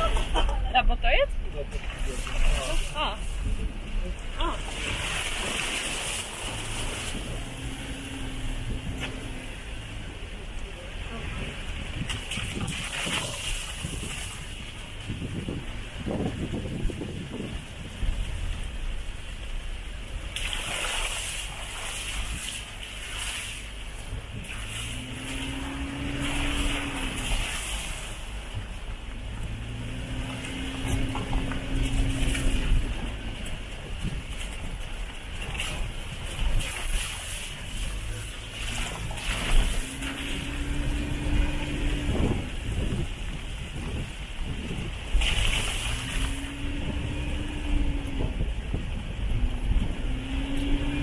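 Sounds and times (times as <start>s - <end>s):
wind buffeting microphone: 11.1s - 20.4s, 23.6s - 51.0s
faint engine hum: 21.2s - 51.0s.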